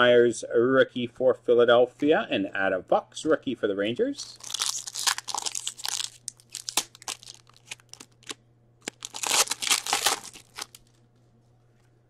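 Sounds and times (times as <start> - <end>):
wrapper crinkling: 4.3 - 11.0.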